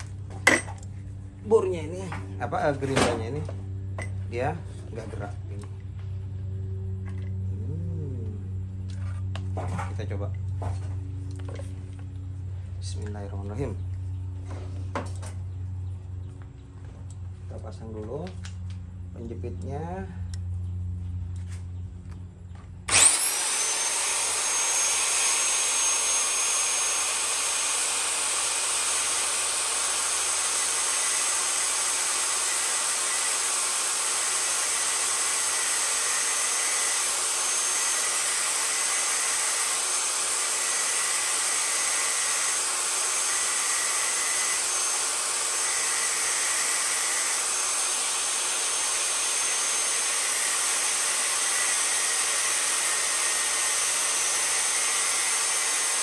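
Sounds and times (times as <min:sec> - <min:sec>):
miter saw motor whining: 0:22.8 - 0:56.0.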